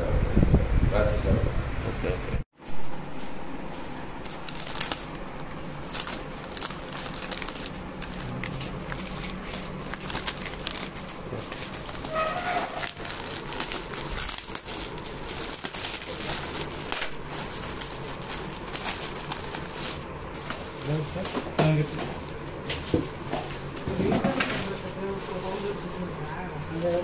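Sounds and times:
plastic wrappers crinkling: 4.2s - 21.3s.

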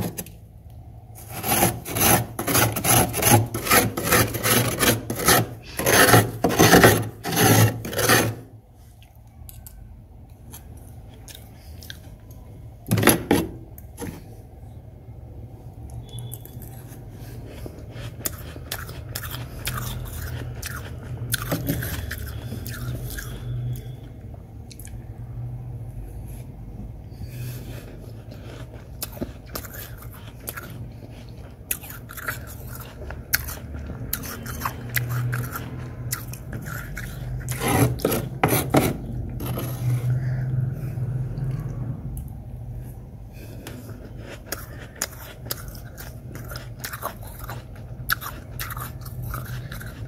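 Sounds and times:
metal spoon scraping frost: 1.2s - 8.5s, 16.0s - 24.0s, 27.5s - 40.4s, 43.7s - 50.0s.

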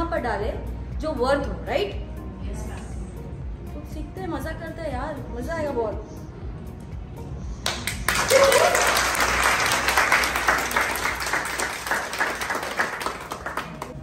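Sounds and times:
crowd applauding: 7.6s - 14.0s.

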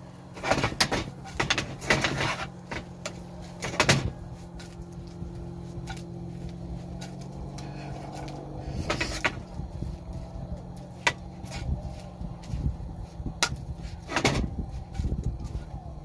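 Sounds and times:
steady low hum: 0.0s - 16.0s
metal skillet scraping on grate: 0.4s - 3.8s.

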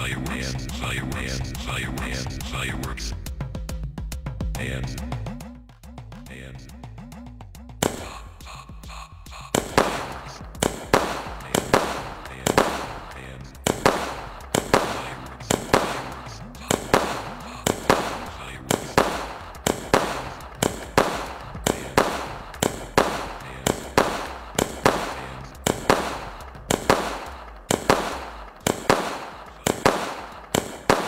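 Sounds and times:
firework cake shots bursting: 7.8s - 8.1s, 9.5s - 31.0s.

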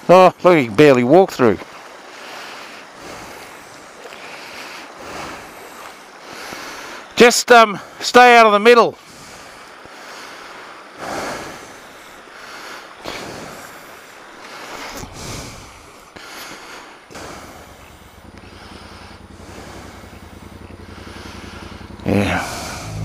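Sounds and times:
motorcycle engine idling: 15.6s - 23.0s
gusts of rushing noise: 16.6s - 23.0s.

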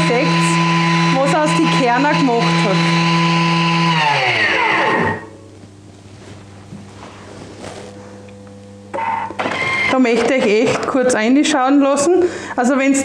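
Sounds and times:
kitchen machine motor whining: 0.0s - 5.4s, 8.2s - 12.1s.

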